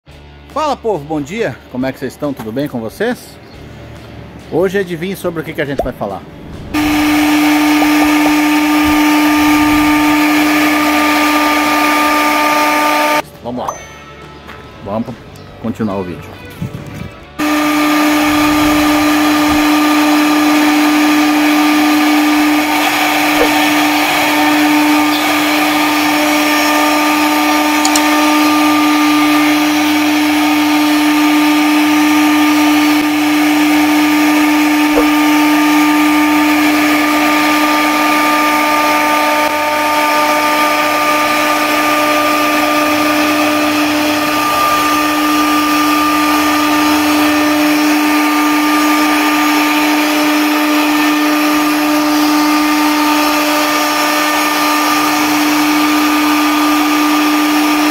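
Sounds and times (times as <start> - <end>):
router spindle whining: 6.6 - 13.2, 17.4 - 57.9.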